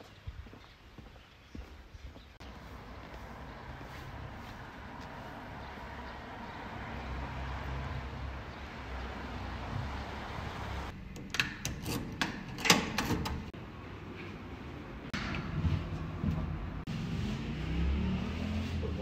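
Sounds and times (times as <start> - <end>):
sharp clicks and knocks: 10.9 - 13.6.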